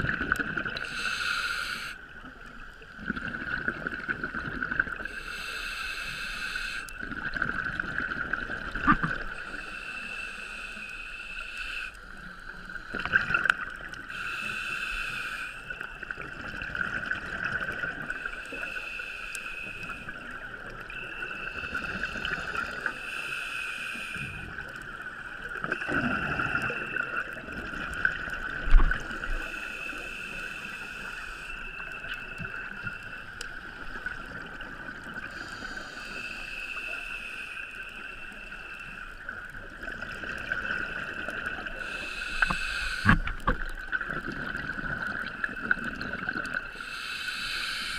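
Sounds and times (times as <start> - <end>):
hissing regulator inhalation: 0.8 - 2.1, 5.0 - 7.0, 9.3 - 12.1, 14.1 - 15.9, 18.1 - 20.3, 21.2 - 24.8, 28.4 - 34.1, 35.2 - 39.3, 40.9 - 43.9, 46.7 - 47.9
bubbly gurgling exhalations: 25.6 - 29.4.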